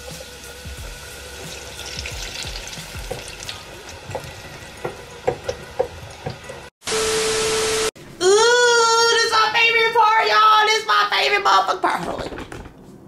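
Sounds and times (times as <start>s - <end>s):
oil sizzling in deep fryer: 0.0s - 7.9s
loud steady tone with hiss: 6.8s - 8.2s.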